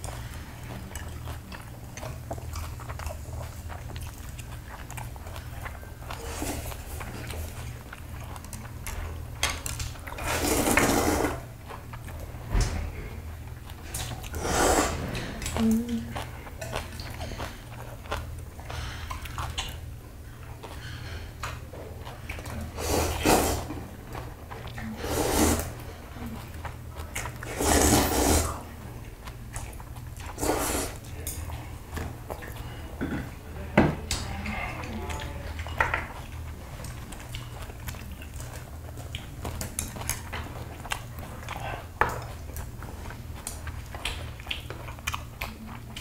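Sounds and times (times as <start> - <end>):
noodles slurped: 0.0 - 9.0, 9.8 - 12.1, 13.7 - 19.9, 22.0 - 31.8
low steady hum: 0.0 - 46.0.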